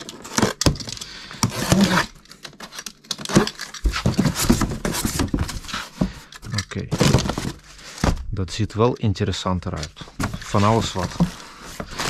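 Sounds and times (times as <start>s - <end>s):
cardboard flaps scraping and rustling: 1.4s - 2.2s, 3.2s - 6.2s, 6.8s - 8.3s, 10.0s - 12.0s.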